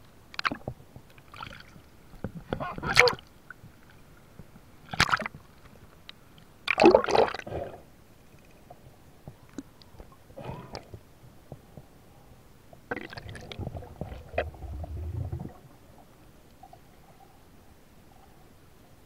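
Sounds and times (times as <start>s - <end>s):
watery gurgling and squelching: 12.9s - 15.8s.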